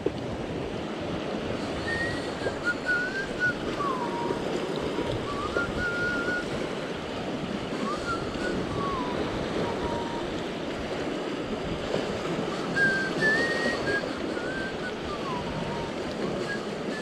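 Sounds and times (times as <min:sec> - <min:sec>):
sea swell washing around rocks: 0:00.0 - 0:17.0
wind buffeting microphone: 0:00.0 - 0:17.0
faint high whistle: 0:01.8 - 0:04.5, 0:05.2 - 0:06.6, 0:07.8 - 0:10.3, 0:12.5 - 0:17.0.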